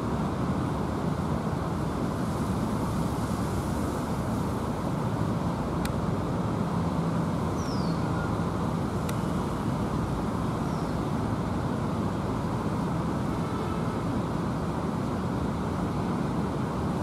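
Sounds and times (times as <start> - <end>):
faint bird chirps: 7.6 - 8.4.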